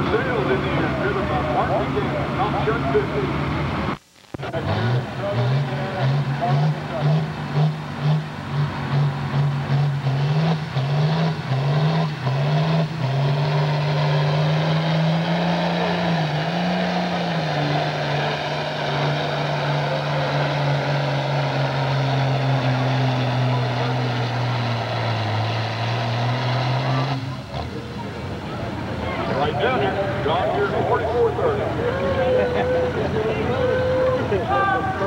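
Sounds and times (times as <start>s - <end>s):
tractor engine under heavy load: 0.0s - 35.0s.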